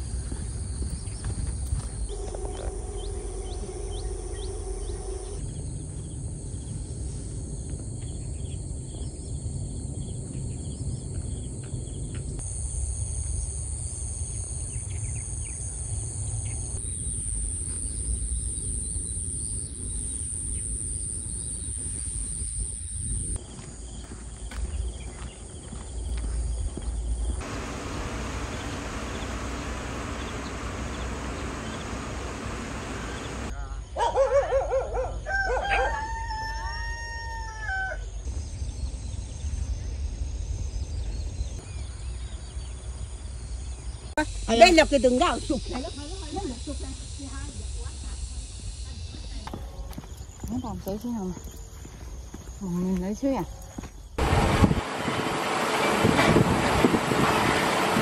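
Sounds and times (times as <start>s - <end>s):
high insect buzz: 0.0s - 6.2s, 27.3s - 33.5s, 43.3s - 50.7s
low rumble: 27.2s - 33.5s
churning water hiss: 27.4s - 33.5s, 54.2s - 58.0s.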